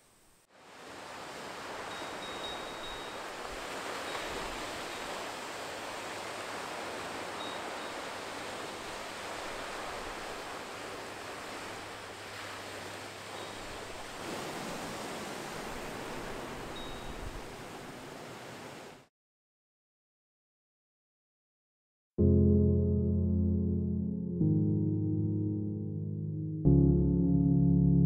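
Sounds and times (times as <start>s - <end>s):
waves washing on gravel shore: 3.2s - 16.8s.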